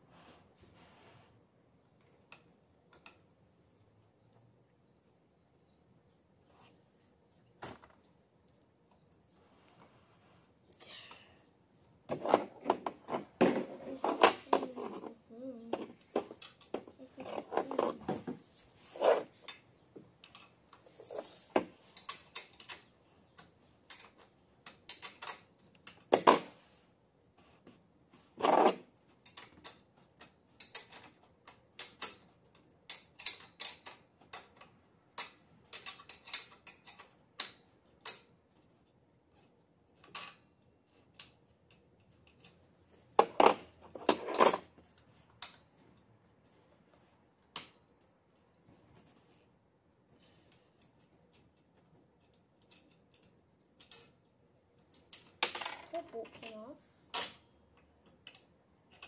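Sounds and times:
tools clinking on metal: 43.4 - 44.7.

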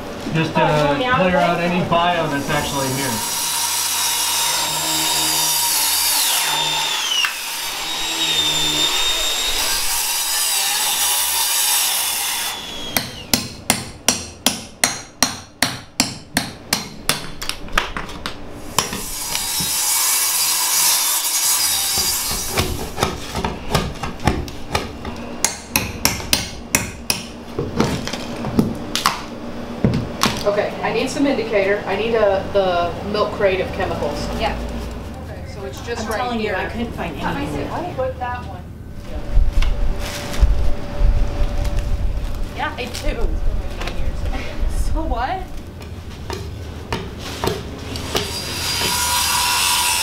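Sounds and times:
circular saw cutting wood: 2.0 - 13.3, 19.0 - 22.9, 47.8 - 50.0
hammer striking chisel: 13.0 - 18.0, 22.0 - 27.9, 46.3 - 49.1.

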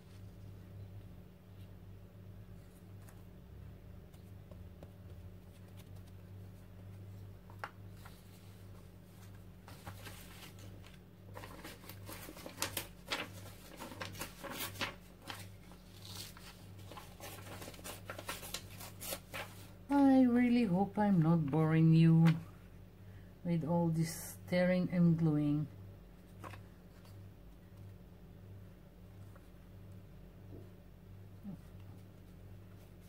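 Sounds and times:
paper tearing and rustling: 9.2 - 19.8.

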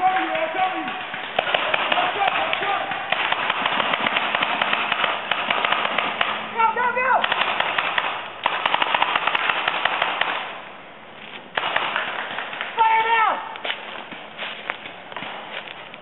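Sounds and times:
paintball markers firing: 0.0 - 6.4, 7.2 - 10.5, 11.5 - 14.2
person shouting: 6.5 - 7.3, 12.8 - 13.6.

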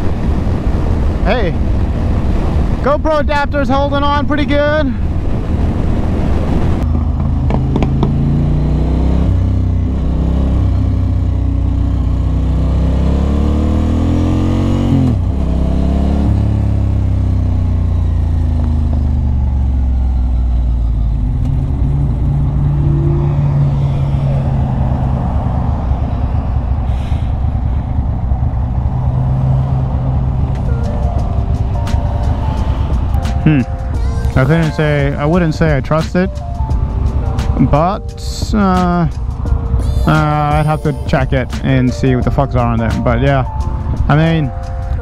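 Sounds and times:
motorcycle engine: 5.1 - 45.0.

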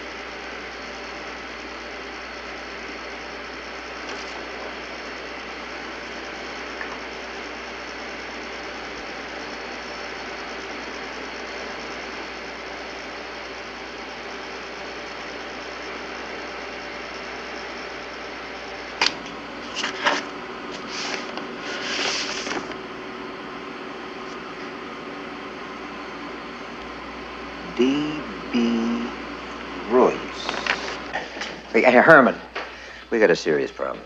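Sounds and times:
machinery hum: 0.0 - 34.0
scraping or rustling noises: 19.6 - 22.7.

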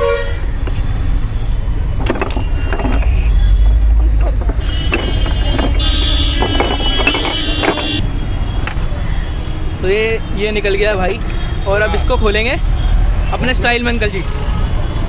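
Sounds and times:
low rumble of road traffic: 0.0 - 15.0
glass bottles clinking: 1.9 - 3.2, 4.9 - 8.0.

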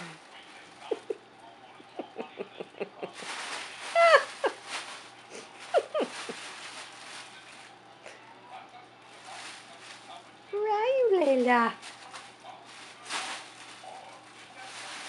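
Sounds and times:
fabric tunnel rustling: 3.1 - 7.8, 9.0 - 10.2, 10.9 - 15.0.

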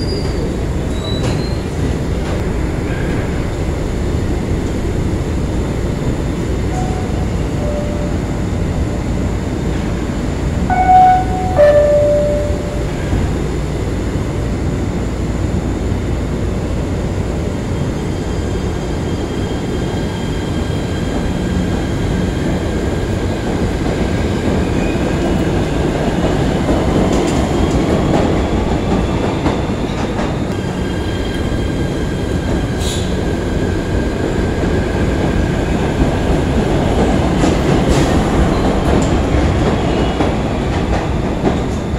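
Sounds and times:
train rumbling: 0.0 - 41.9
two-tone signal: 10.7 - 13.0.

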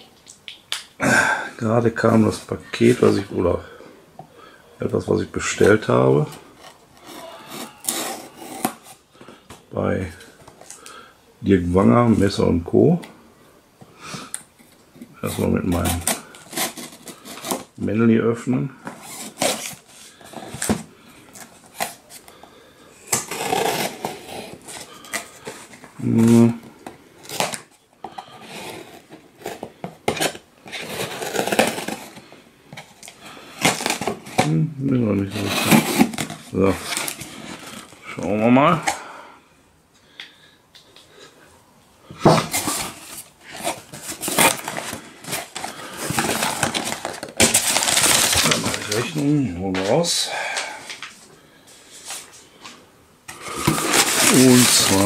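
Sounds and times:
knife cutting cardboard: 6.6 - 9.0, 23.1 - 26.4, 28.3 - 32.2
packing paper rustling in a box: 23.0 - 38.2, 42.2 - 50.0, 53.3 - 55.0.

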